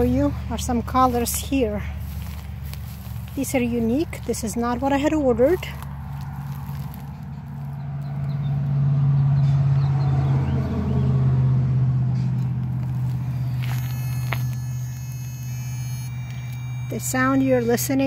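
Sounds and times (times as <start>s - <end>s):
electronic repeller buzzing drone: 12.7s - 18.0s.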